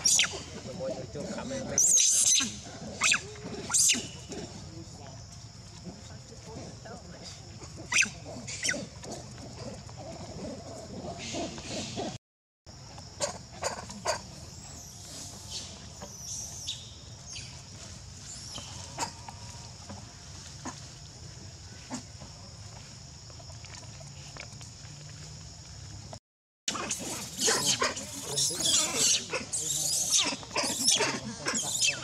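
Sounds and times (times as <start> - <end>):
monkey call: 0.0 - 4.5, 7.7 - 12.2, 26.7 - 32.0
rustling leaves and snapping twigs: 15.0 - 26.2.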